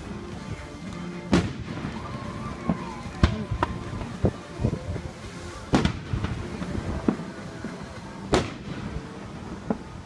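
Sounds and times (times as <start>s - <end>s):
smaller firework bangs: 0.0s - 10.0s
firework shells booming: 1.3s - 2.0s, 5.7s - 9.9s.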